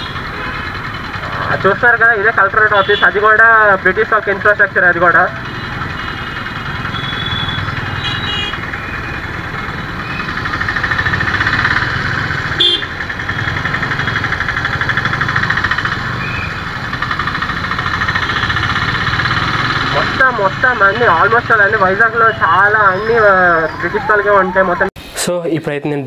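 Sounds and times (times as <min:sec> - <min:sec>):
slow traffic engines: 0:00.0 - 0:25.1
horn toots: 0:05.4 - 0:09.1, 0:12.4 - 0:14.2.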